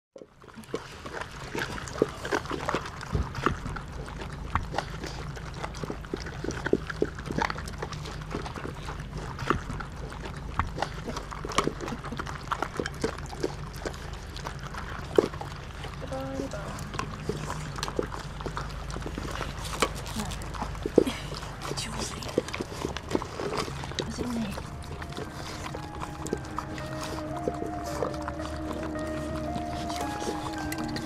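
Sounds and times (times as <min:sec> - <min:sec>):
puppies crunching food from bowls: 0:00.2 - 0:31.0
dog whimpers: 0:23.4 - 0:31.0.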